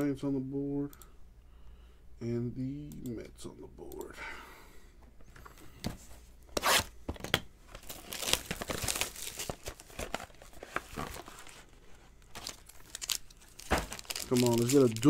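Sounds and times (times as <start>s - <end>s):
shrink-wrap tearing and crinkling: 7.8s - 15.0s.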